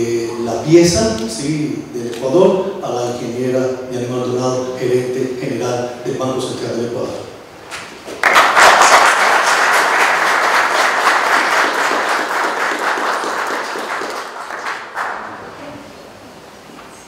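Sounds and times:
audience applauding: 8.1s - 15.6s.

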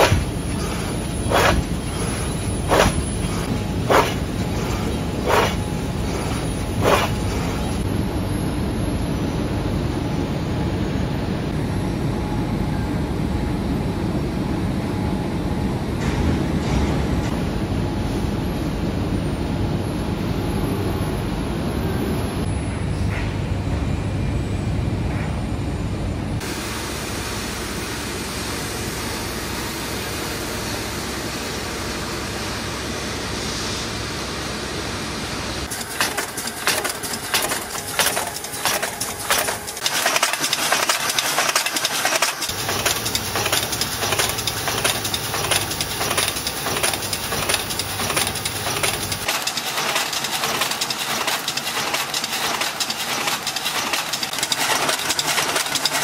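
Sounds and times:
machinery mechanical rush: 0.0s - 8.1s, 35.5s - 56.0s
rhythmic metallic clatter: 35.7s - 56.0s.

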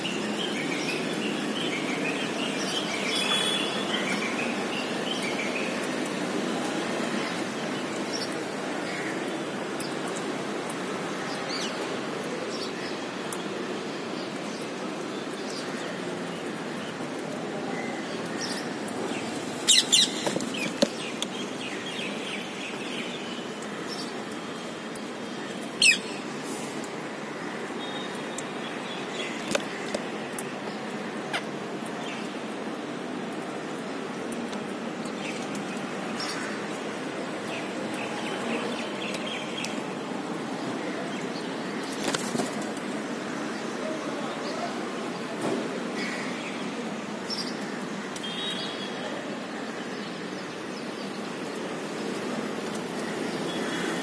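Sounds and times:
parakeet wings flapping: 41.9s - 42.8s.

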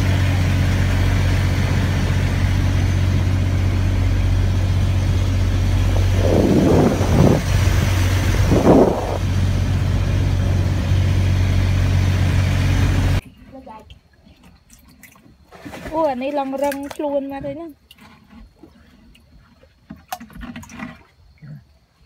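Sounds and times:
loud bursts of rushing noise: 0.0s - 13.2s
boat engine humming: 0.0s - 14.6s.

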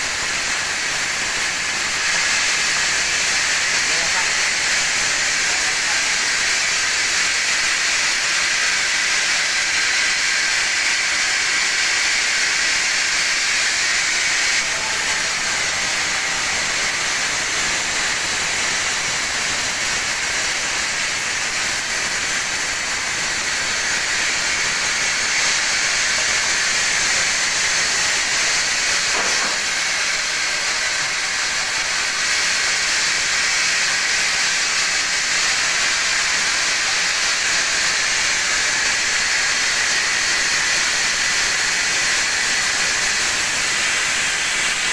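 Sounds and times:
band saw cutting wood: 0.0s - 44.9s.

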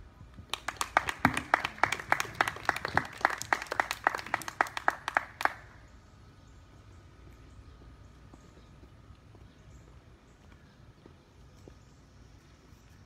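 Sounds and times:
audience clapping: 0.5s - 5.8s.

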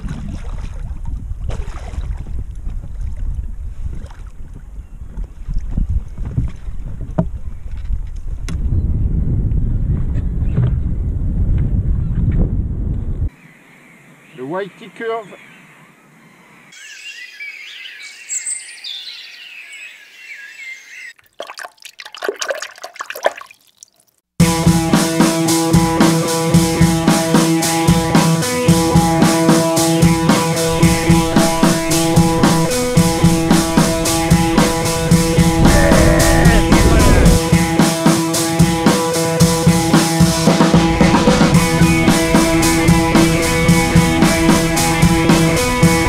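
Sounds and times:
music with drum beat: 24.4s - 46.0s.

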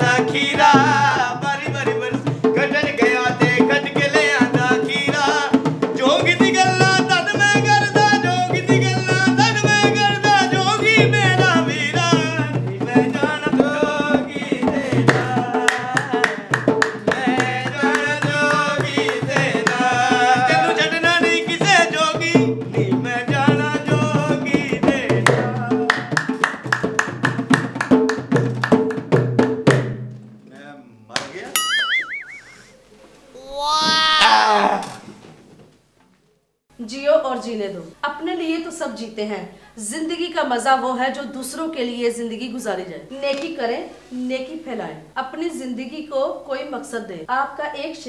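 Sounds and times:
person singing: 0.0s - 26.4s
dholak drum beat: 0.0s - 30.4s
hand clapping: 15.1s - 19.9s, 25.9s - 29.0s.

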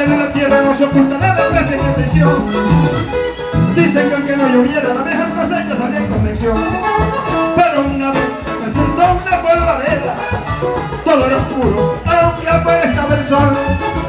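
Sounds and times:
man singing into a microphone: 0.0s - 3.0s, 3.6s - 10.4s, 11.0s - 14.0s
bass guitar: 0.0s - 14.0s
button accordion melody: 0.0s - 14.0s
hand percussion: 0.0s - 14.0s.

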